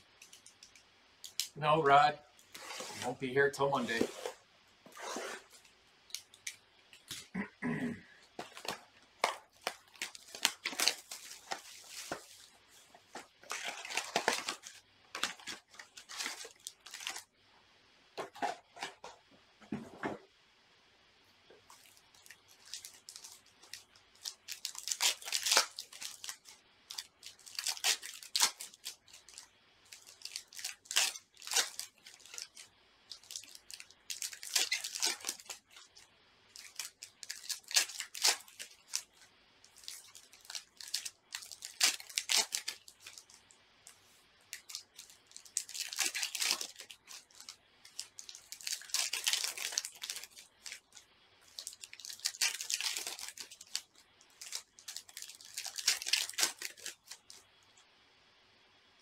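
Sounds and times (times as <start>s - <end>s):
foil wrappers tearing and crinkling: 8.4s - 17.3s, 21.7s - 43.4s, 44.5s - 57.4s.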